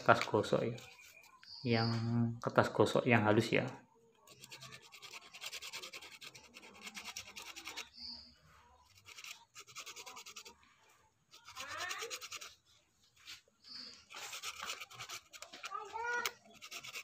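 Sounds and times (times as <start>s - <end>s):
sandpaper rubbing: 4.3s - 10.6s, 11.3s - 17.0s.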